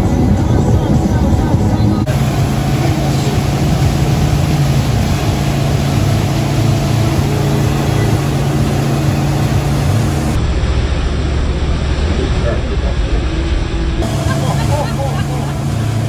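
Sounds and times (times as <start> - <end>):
boat engine drone: 0.0 - 16.0
wind and water wash: 0.0 - 16.0.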